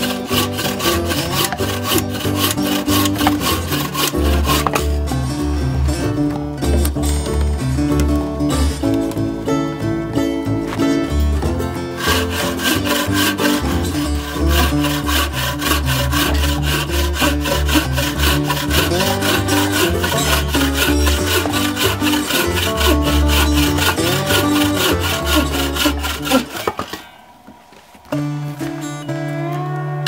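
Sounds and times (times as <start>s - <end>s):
bucksaw cutting log: 0.0s - 5.2s, 11.4s - 27.1s
background music: 0.0s - 30.0s.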